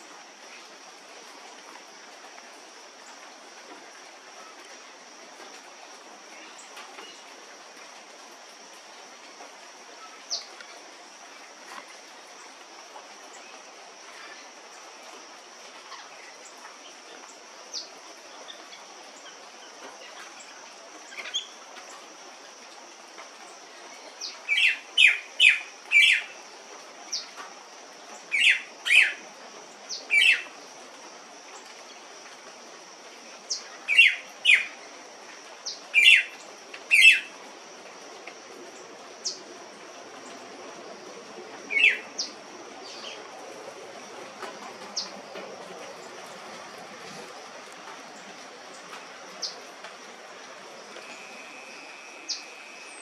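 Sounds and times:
soft hiss: 0.0 - 53.0
faint chirps: 50.9 - 53.0.

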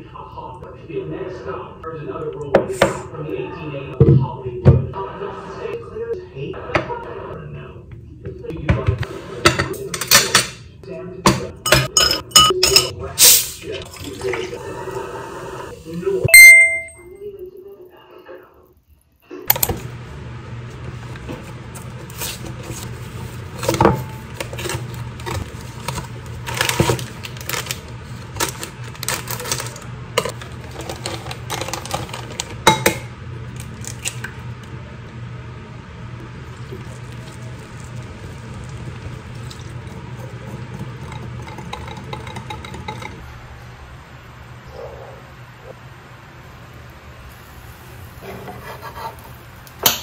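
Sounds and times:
whisking batter in glass bowl: 36.9 - 43.2.

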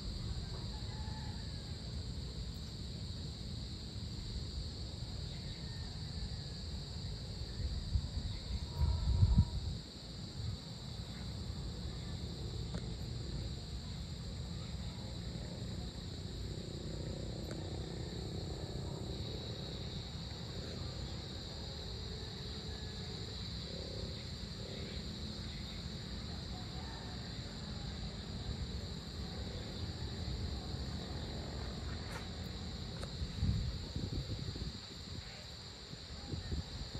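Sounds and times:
crickets chirping: 0.0 - 36.9
low outdoor rumble: 0.0 - 36.9
wind buffeting microphone: 7.6 - 9.8, 32.6 - 36.9.

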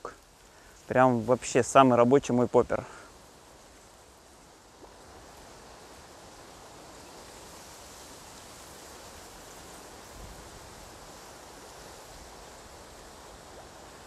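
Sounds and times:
dry reeds and grass rustling: 0.0 - 14.0
wind on the microphone: 4.8 - 14.0.

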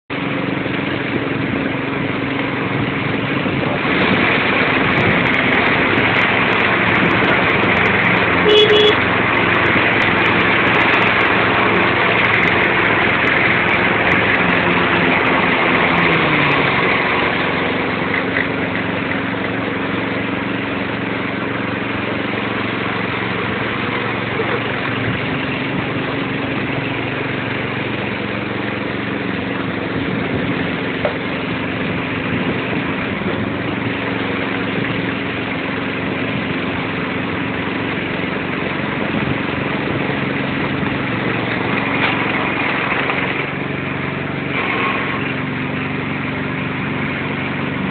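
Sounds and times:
car engine running: 0.1 - 47.9
knocks and rattles over bumps: 28.8 - 45.4.

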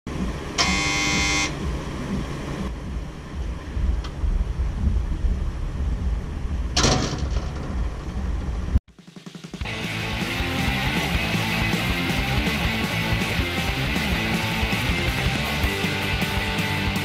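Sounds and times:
steady low rumble: 0.1 - 0.6, 1.5 - 8.8
short buzzing tone: 0.6 - 1.6.

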